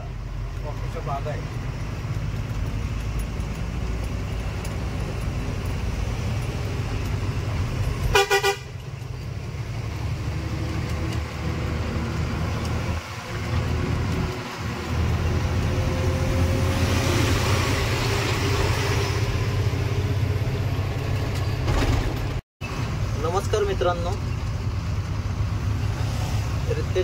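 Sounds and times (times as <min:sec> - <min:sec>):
truck engine rumble: 0:00.0 - 0:27.0
vehicle horn toots: 0:08.1 - 0:08.8.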